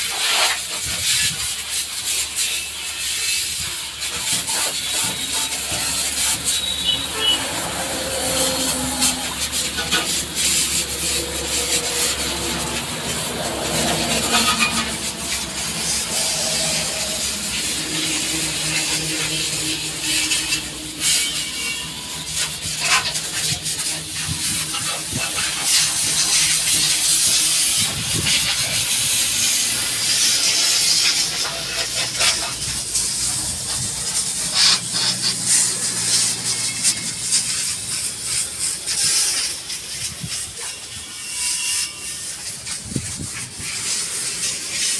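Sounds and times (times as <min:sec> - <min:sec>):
high-pressure water spray hissing: 0:00.0 - 0:44.9
scrubbing: 0:03.2 - 0:21.4.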